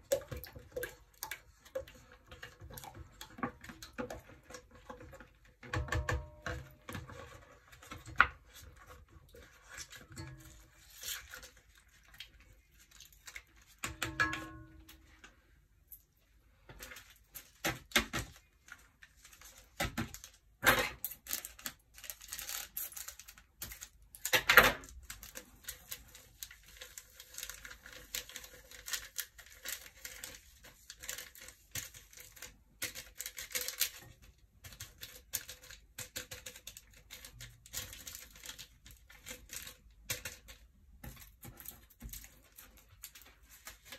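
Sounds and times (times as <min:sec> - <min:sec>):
paper sachets crinkling and tearing: 0:21.1 - 0:34.2.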